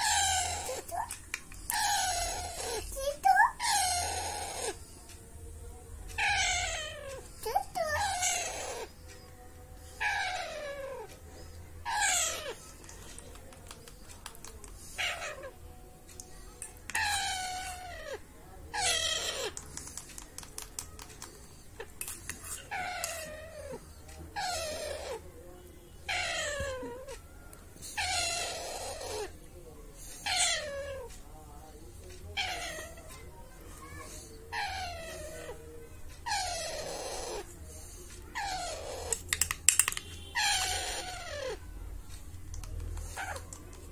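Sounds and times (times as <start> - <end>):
parrot chick squawking: 3.5 - 4.8.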